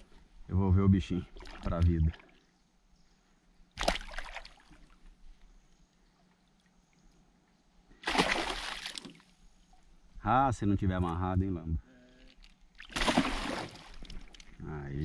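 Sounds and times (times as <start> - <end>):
water splashing: 1.3 - 2.4, 3.8 - 4.9, 8.0 - 9.3, 12.3 - 14.6.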